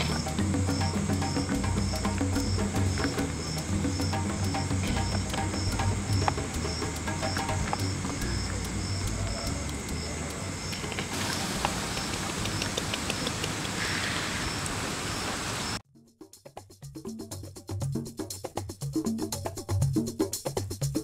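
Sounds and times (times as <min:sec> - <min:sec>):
high chirp repeating: 0:00.0 - 0:10.8
low hum: 0:00.0 - 0:13.4
faint percussive music: 0:00.0 - 0:13.8, 0:15.8 - 0:21.0
steady rain-like hiss: 0:00.0 - 0:15.8.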